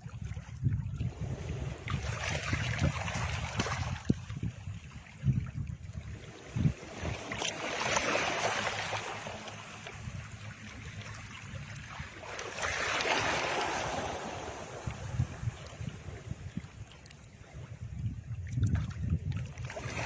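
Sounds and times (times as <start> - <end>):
faint low rumble: 8.3 - 19.8.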